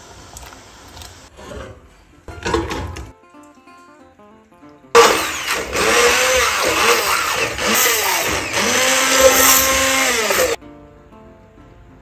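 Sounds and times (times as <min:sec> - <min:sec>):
immersion blender motor running: 0:05.0 - 0:10.6.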